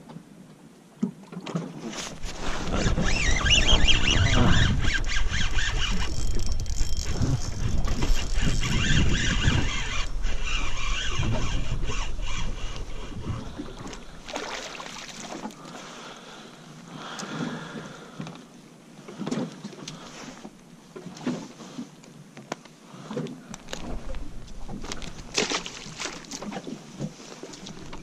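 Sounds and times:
wind buffeting microphone: 2.1 - 14.3
fishing reel whine: 2.7 - 13.6.

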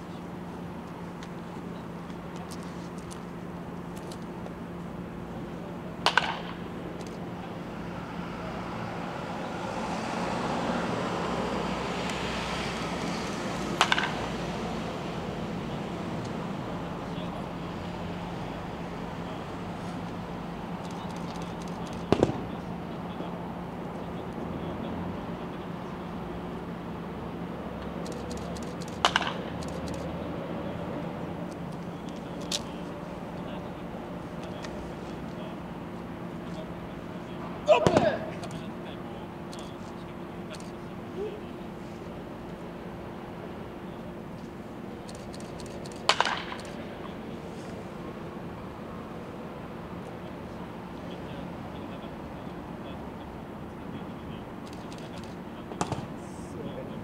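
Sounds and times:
steady low hum: 0.0 - 57.0
baseball bat cracking ball: 6.0 - 6.6, 13.8 - 14.3, 22.1 - 22.5, 29.0 - 29.5, 37.7 - 38.6, 46.0 - 46.6, 55.8 - 56.1.

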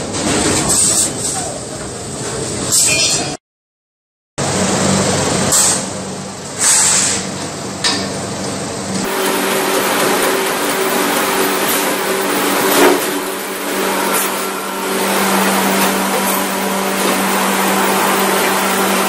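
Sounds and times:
motor hum: 8.7 - 19.0
cutting wheel grinding metal pipe: 9.0 - 19.0.

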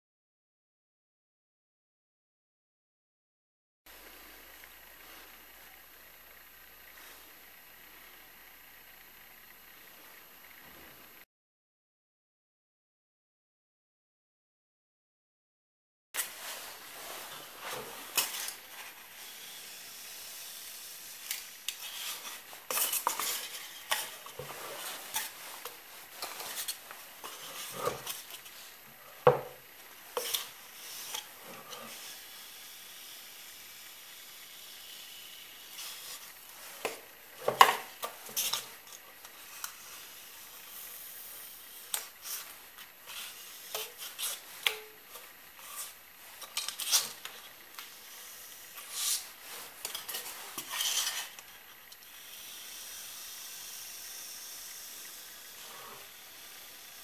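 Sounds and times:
foamboard rubbing and scraping: 16.2 - 19.1, 21.8 - 32.0.

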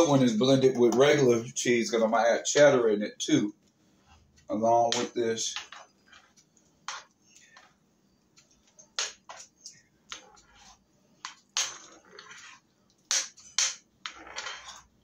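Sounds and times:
spoon scraping a cast-iron skillet: 4.0 - 7.8, 8.4 - 15.0.

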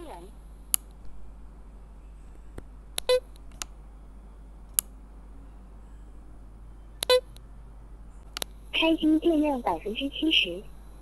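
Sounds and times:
button clicks: 7.0 - 7.4.

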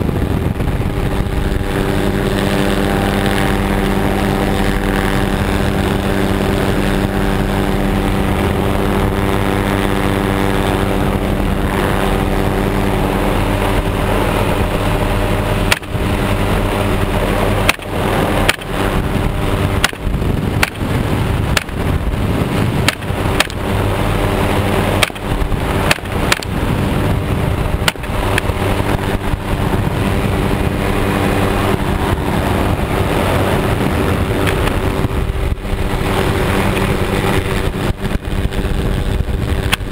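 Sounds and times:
helicopter rotor drone: 0.0 - 39.9.

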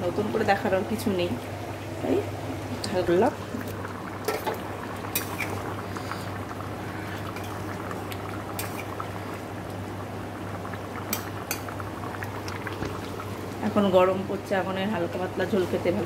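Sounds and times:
curry bubbling in a pan: 0.0 - 16.0
low steady hum: 0.0 - 16.0.

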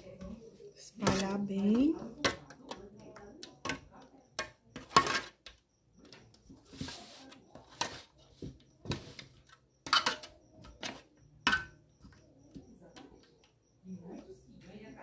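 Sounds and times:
metal spoon scraping metal pan: 4.8 - 5.5, 9.8 - 10.3.

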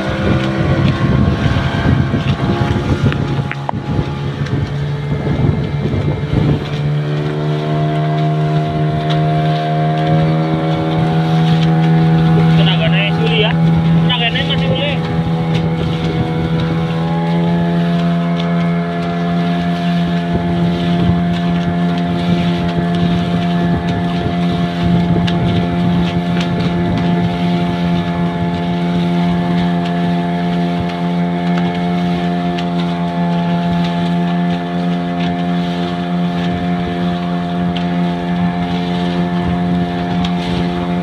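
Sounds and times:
outboard motor running: 0.0 - 41.0
wind on microphone: 0.0 - 41.0.

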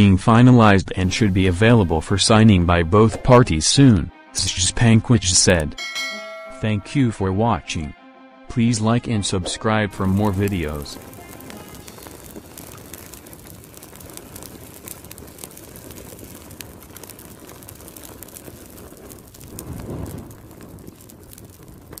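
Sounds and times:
crackling fire: 0.9 - 2.8, 9.9 - 22.0.

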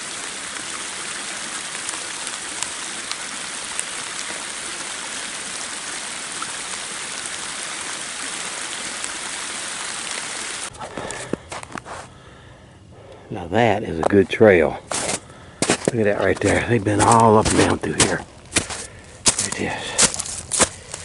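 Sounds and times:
rain hissing in woodland: 0.0 - 21.0.

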